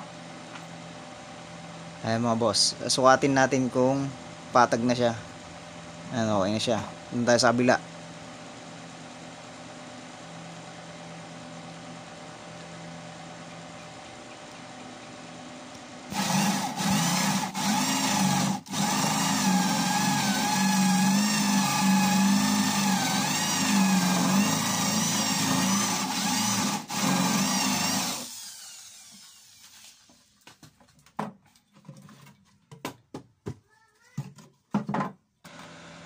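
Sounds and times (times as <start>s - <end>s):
electric drill boring into wood: 16.1s - 30.2s, 35.5s - 36.0s.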